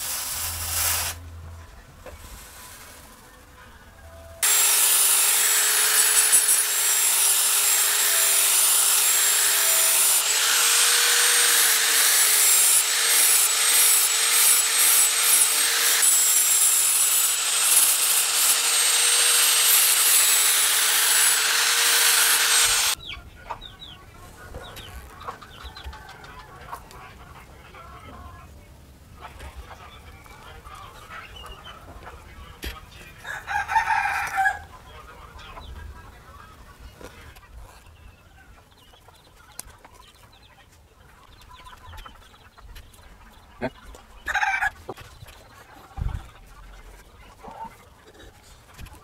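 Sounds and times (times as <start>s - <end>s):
angle grinder grinding metal: 4.4s - 23.0s.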